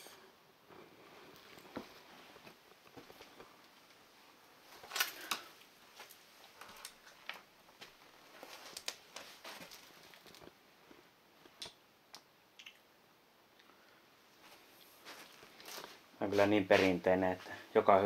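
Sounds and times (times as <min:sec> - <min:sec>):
footsteps on littered floor: 0:05.9 - 0:10.5, 0:14.4 - 0:17.6.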